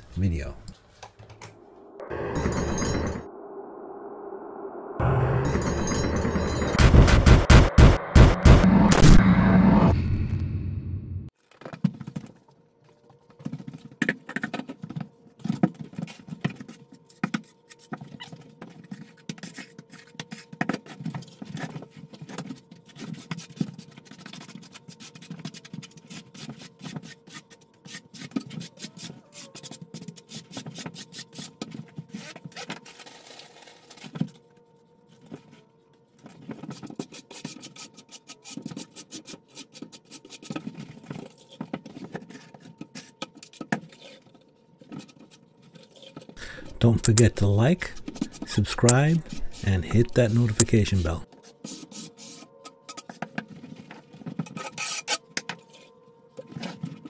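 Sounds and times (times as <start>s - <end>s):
trowel scraping mortar: 46.5s - 51.2s.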